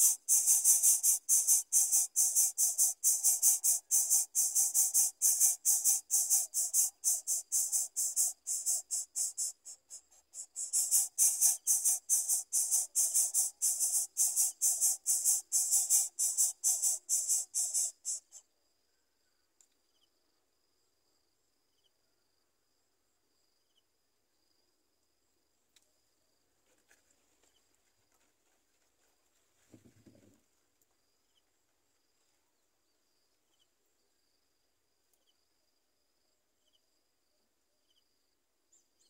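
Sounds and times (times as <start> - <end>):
nestlings begging with shrill chirps: 0.0 - 18.4.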